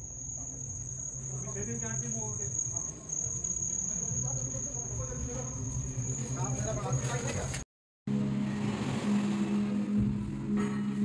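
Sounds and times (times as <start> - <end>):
crickets trilling: 0.0 - 7.5.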